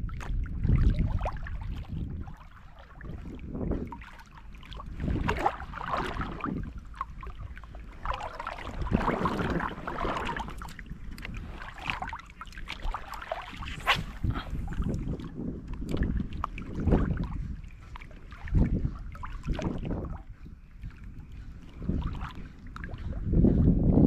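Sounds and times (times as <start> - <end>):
person wading in shallow water: 0.0 - 24.0
wind rumbling on microphone: 0.0 - 24.0
sharp splash: 4.0 - 6.6, 8.0 - 10.8, 11.5 - 14.9.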